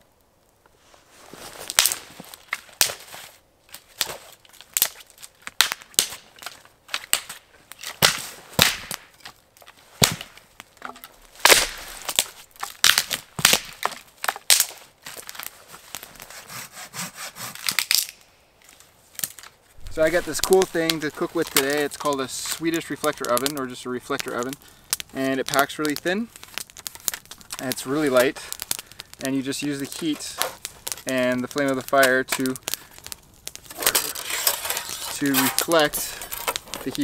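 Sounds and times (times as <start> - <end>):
wood cracking and knocking: 3.8 - 15.5, 26.4 - 29.0
knife rasping on wood: 16.3 - 17.6.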